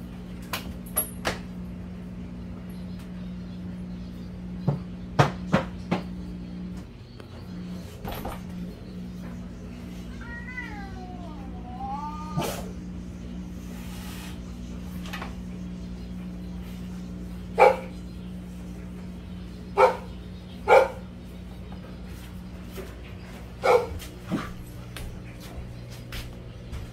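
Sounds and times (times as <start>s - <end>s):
puppy barking: 17.6s - 18.0s, 19.8s - 21.1s, 23.6s - 24.1s.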